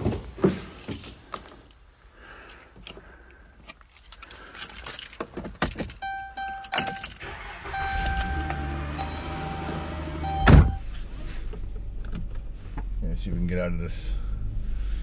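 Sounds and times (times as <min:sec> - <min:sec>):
keys jangling: 0:03.6 - 0:07.2
electronic dashboard chime: 0:06.0 - 0:10.8.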